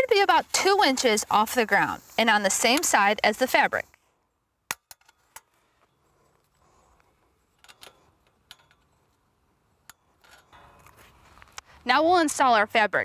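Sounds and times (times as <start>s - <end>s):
pliers and wire clicking: 6.3s - 11.7s.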